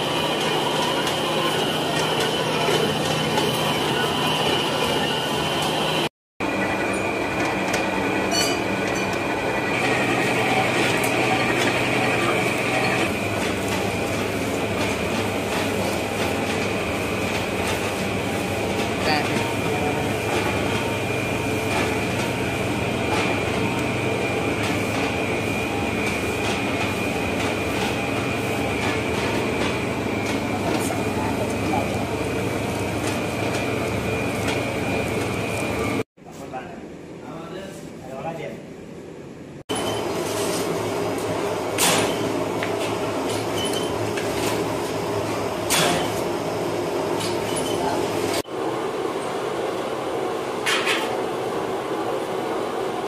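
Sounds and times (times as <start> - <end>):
electric machine hum: 0.0 - 36.1.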